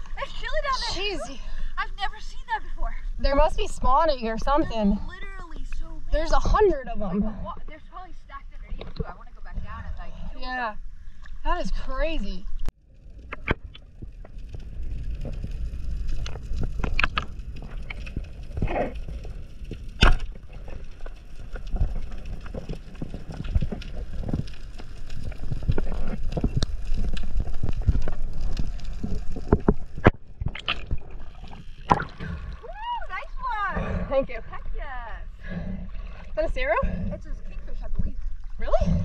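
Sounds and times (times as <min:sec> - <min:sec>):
muffled underwater rumble: 0:02.8 - 0:39.0.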